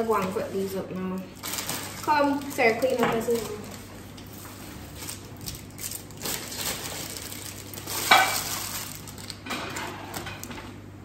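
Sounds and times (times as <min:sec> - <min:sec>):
cookware and utensils clattering: 0:07.9 - 0:08.8.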